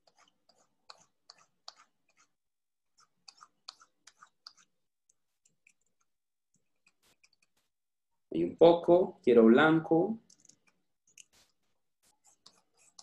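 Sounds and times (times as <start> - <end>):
computer mouse clicking: 10.2 - 11.6.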